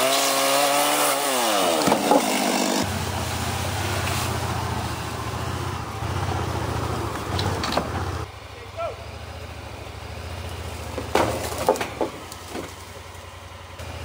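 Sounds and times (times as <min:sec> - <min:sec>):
chainsaw cutting wood: 0:00.0 - 0:02.9, 0:10.8 - 0:13.0
vehicle engine running low: 0:02.8 - 0:14.0
sharp knocks: 0:10.9 - 0:12.8.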